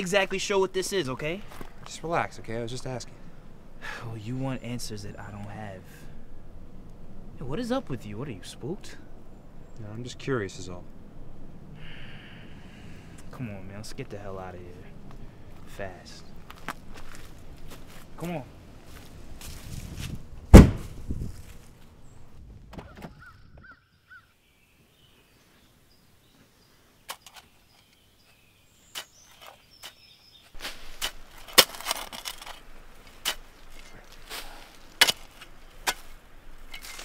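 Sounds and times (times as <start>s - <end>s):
sharp knock: 20.5s - 21.0s
faint bird chirps: 22.9s - 30.6s
shovel scraping into soil: 28.9s - 37.0s.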